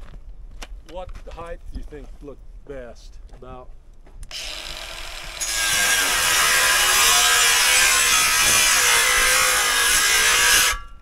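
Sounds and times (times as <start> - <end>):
power tool driving into wood: 4.3 - 11.0.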